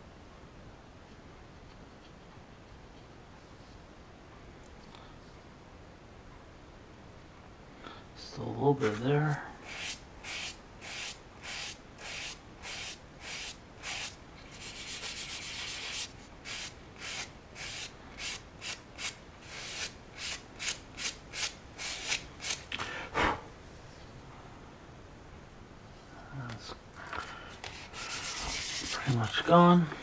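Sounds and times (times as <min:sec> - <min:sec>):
sandpaper rubbing back and forth: 0:09.6 - 0:22.6, 0:27.7 - 0:29.4.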